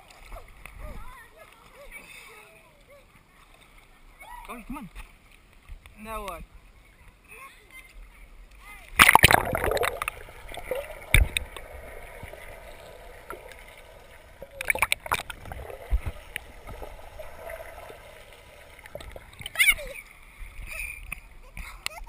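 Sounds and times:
underwater water sloshing and gurgling: 0.0 - 4.3, 8.4 - 21.9
sharp knocks and splashes: 9.0 - 18.0.

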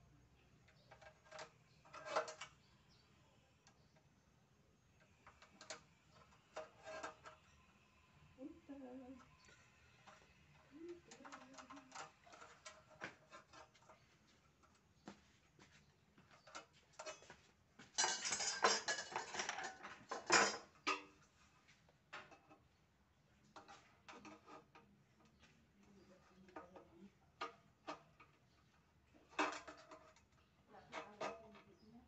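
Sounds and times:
metal and tools clattering: 0.6 - 2.7, 5.0 - 7.5, 9.2 - 14.9, 15.7 - 21.4, 27.4 - 31.8.

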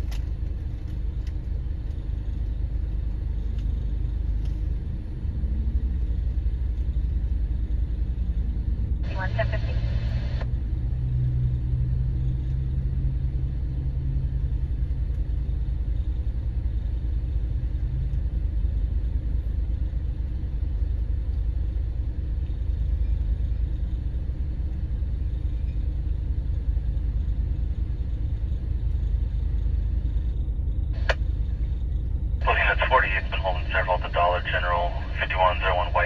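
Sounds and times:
low hum: 0.0 - 36.0
road traffic rumble: 4.2 - 22.5, 31.0 - 36.0.

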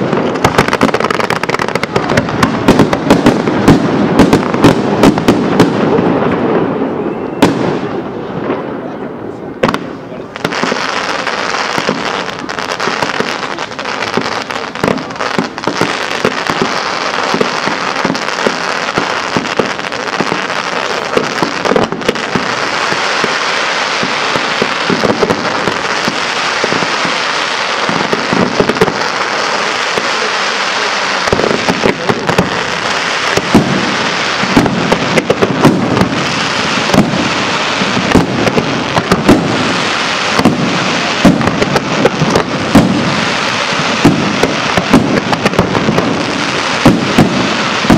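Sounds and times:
deep fireworks booms: 0.0 - 47.9
fireworks launches and bursts: 0.0 - 47.9
hissing crackle of fireworks: 0.0 - 47.9.

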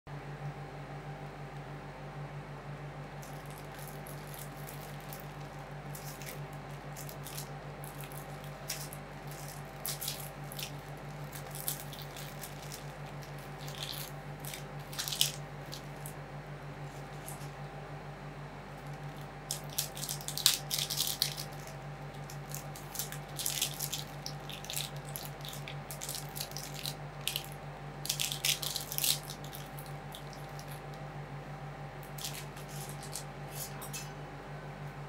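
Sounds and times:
machine low hum: 0.1 - 35.0
crisp high-pitched crackling: 3.2 - 16.2, 18.8 - 31.0, 32.0 - 33.8.

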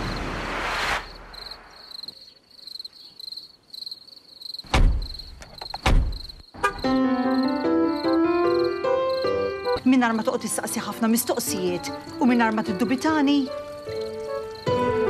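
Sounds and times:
crickets chirping: 0.0 - 15.0
background music: 6.6 - 15.0.

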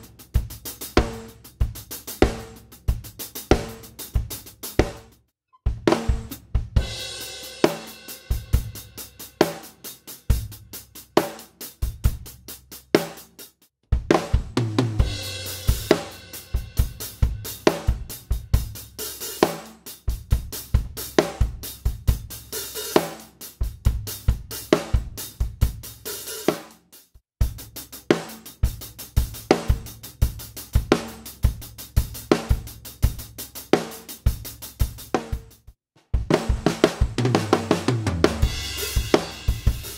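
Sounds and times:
bass drum: 0.0 - 9.5, 13.9 - 19.0, 27.4 - 33.5, 34.2 - 39.9
snare drum: 3.4 - 5.1, 5.7 - 8.7, 14.0 - 18.0, 33.8 - 39.9
closed hi-hat strokes: 38.3 - 39.9.

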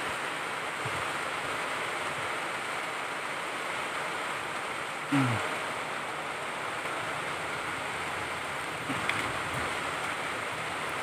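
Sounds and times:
low grunt: 5.1 - 5.5.

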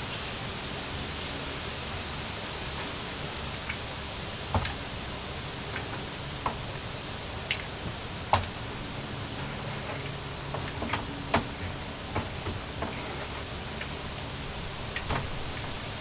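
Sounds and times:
steady background hiss: 0.0 - 16.0.

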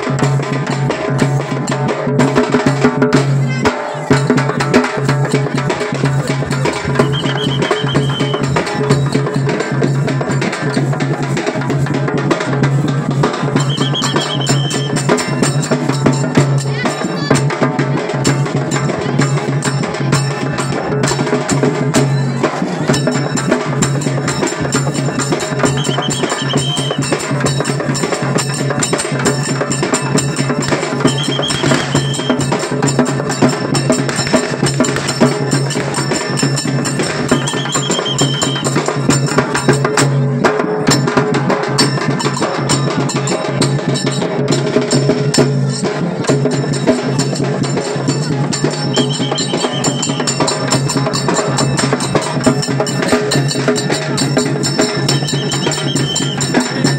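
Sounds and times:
large drum beating fast rhythm: 0.0 - 56.9
short high steady tone: 6.8 - 8.6, 13.6 - 15.1, 31.1 - 32.5, 37.3 - 38.7, 48.8 - 50.4.

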